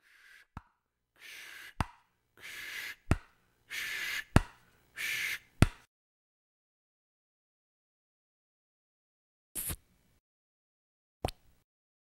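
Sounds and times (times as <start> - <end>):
breathy mouth hiss: 2.4 - 3.0, 3.7 - 4.4, 5.0 - 5.5.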